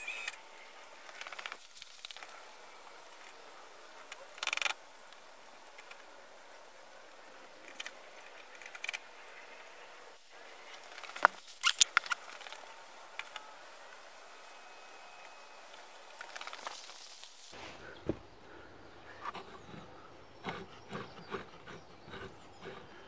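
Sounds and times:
faint ticks: 0:00.0 - 0:09.6
hands rustling: 0:15.2 - 0:18.2.

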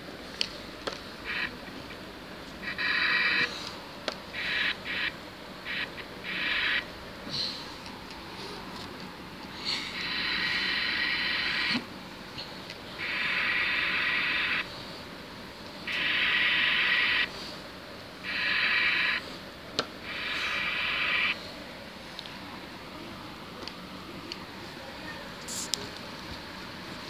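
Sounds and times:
toy electronic steam hiss: 0:09.9 - 0:11.8, 0:15.9 - 0:17.3, 0:18.3 - 0:19.2, 0:20.1 - 0:21.4.

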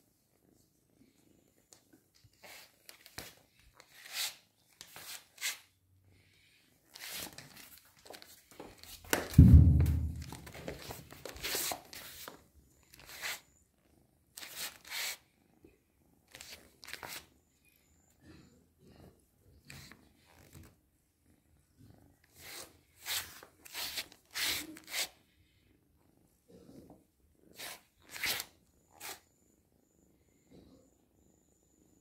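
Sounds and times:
heavy low thump: 0:09.4 - 0:10.5.

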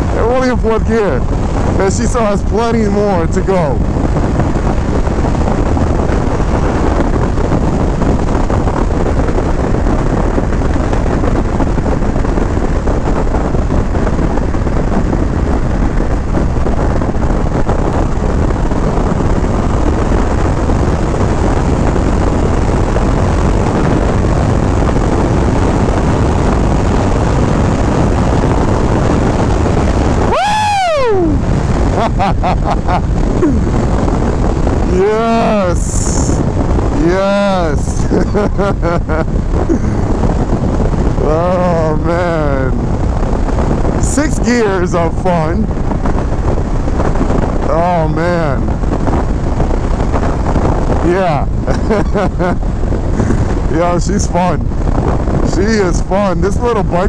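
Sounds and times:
motorcycle engine running hard: 0:00.0 - 0:57.0
wind rush: 0:00.0 - 0:57.0.

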